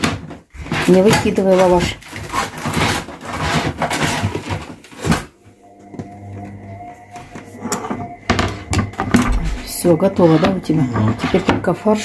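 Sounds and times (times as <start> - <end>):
dry bread scraps rustling: 0.0 - 5.4.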